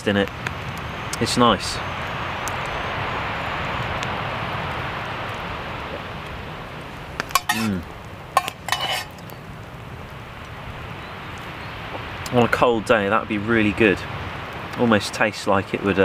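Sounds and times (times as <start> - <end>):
metal spoon clinking in cup: 7.4 - 7.8, 8.4 - 9.1.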